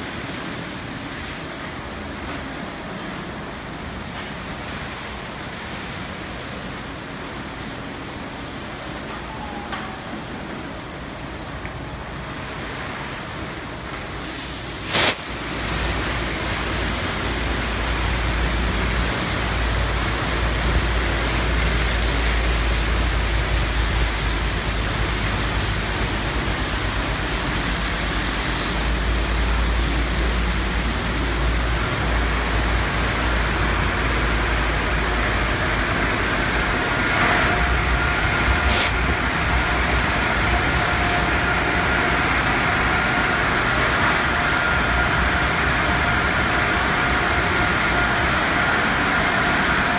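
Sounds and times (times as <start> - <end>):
car wash brushes and water spray: 12.3 - 44.2.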